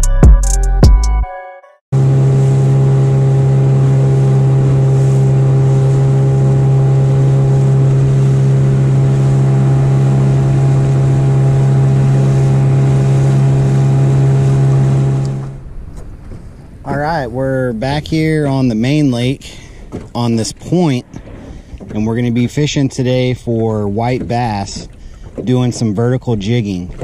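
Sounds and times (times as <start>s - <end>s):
outboard motor running: 2.0s - 27.0s
water rushing: 2.0s - 27.0s.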